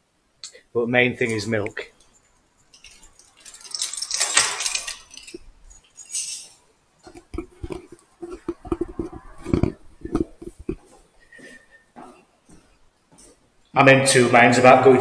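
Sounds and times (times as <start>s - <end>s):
light clinking and rattling: 1.4s - 11.0s.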